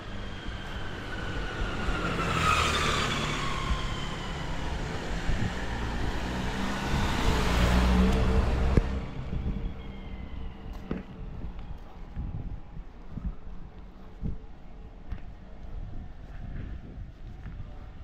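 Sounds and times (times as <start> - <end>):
car passing with tyre whine: 0.0 - 14.2
vehicle low rumble: 0.0 - 18.0.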